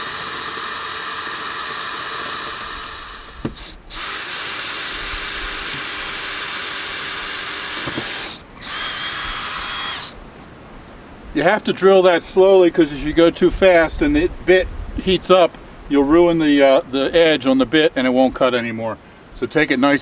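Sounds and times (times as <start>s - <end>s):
drill boring into concrete: 0.0s - 10.2s.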